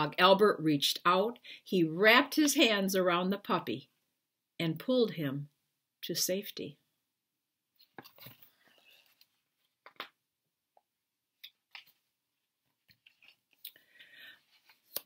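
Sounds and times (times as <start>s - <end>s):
book page turning: 7.8s - 10.1s, 12.7s - 13.6s, 14.5s - 15.0s.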